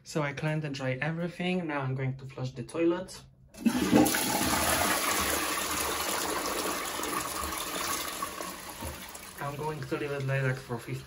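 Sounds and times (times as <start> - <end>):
toilet flushing: 3.6 - 11.0.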